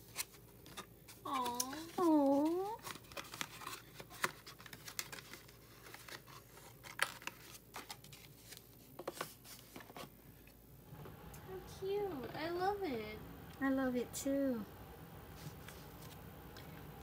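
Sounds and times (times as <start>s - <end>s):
cardboard and paper rustling: 0.0s - 10.2s, 15.3s - 16.8s.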